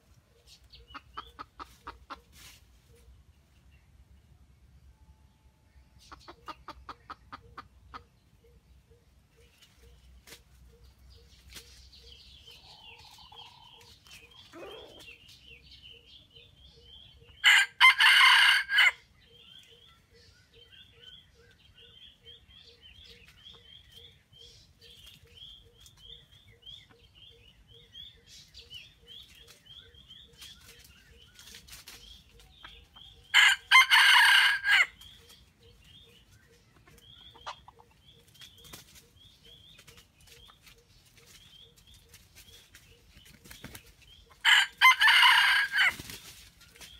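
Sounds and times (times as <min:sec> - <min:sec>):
rooster crowing: 0:17.4 - 0:19.0, 0:33.4 - 0:34.9, 0:44.5 - 0:45.9.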